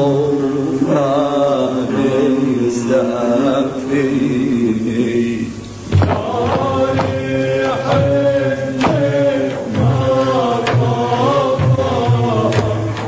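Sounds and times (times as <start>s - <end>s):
percussive strikes: 5.9s - 13.0s
chant-like melodic line: 6.1s - 13.0s.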